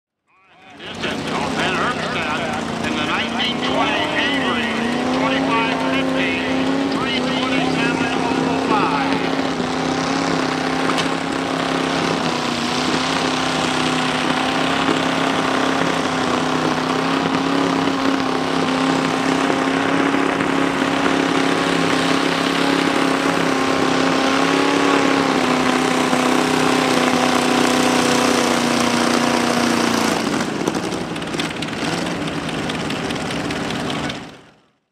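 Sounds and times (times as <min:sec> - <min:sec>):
tractor engine pulling hard: 0:00.4 - 0:34.6.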